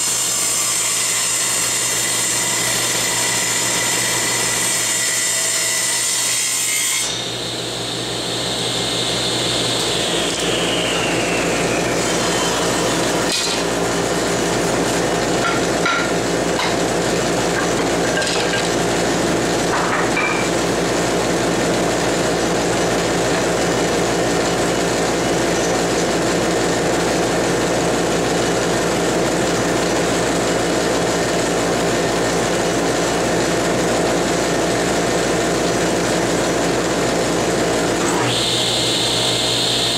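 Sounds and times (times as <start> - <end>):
table saw cutting wood: 0.0 - 39.9.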